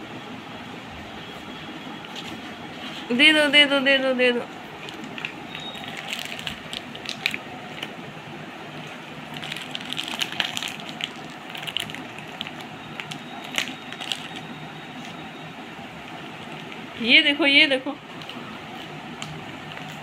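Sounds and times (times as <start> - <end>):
plastic wrapper crinkling: 4.8 - 8.0, 8.8 - 15.2, 16.0 - 17.0, 18.0 - 20.0.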